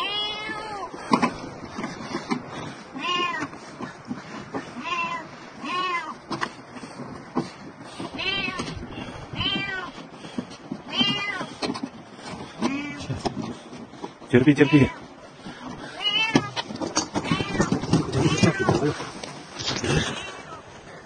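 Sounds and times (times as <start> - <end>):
cat meowing in distress: 0.0 - 1.0, 2.9 - 3.5, 4.8 - 6.2, 8.1 - 9.9, 10.9 - 11.5, 12.6 - 13.2, 16.0 - 19.1.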